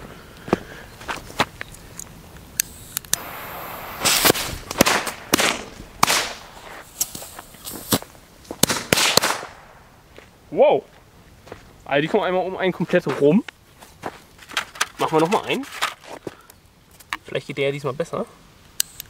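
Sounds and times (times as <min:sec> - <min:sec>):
firecracker bangs and fizzing: 0:03.2 - 0:08.0, 0:08.6 - 0:09.8.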